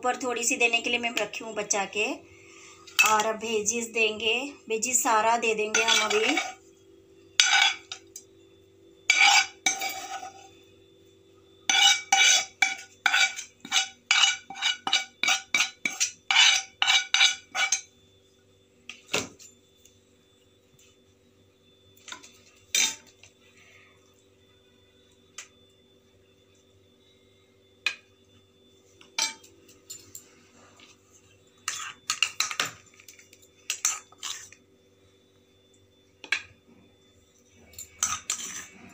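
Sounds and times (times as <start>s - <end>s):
spoon scraping frying pan: 5.7s - 6.6s, 9.1s - 10.5s, 11.7s - 17.8s, 31.6s - 34.6s, 37.9s - 38.8s.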